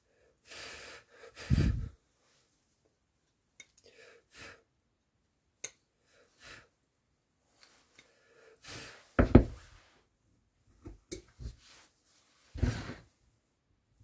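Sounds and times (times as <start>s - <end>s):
puffs of breath: 0.0s - 2.0s, 8.0s - 9.2s
wood carving knocks: 9.2s - 9.6s.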